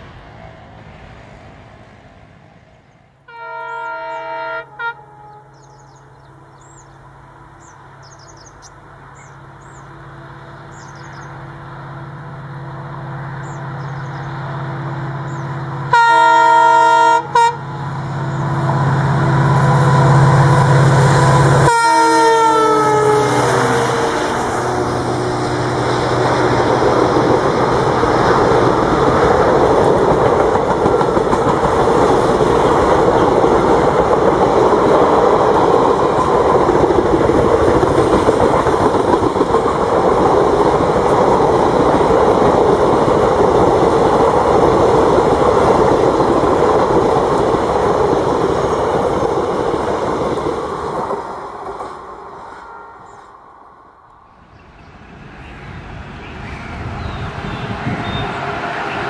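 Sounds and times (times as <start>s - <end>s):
diesel locomotive engine hum: 0.0s - 59.0s
train rumbling past: 0.0s - 59.0s
locomotive horn blasts: 3.3s - 5.7s, 15.9s - 17.8s, 19.4s - 25.0s, 52.5s - 53.3s.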